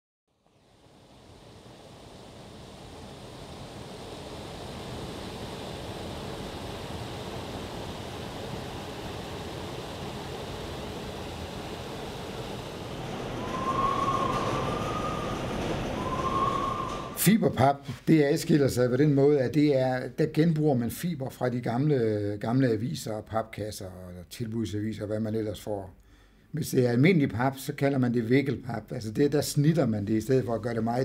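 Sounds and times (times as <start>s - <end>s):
machinery running: 10.0s - 17.4s
short machine squeals: 13.3s - 17.2s.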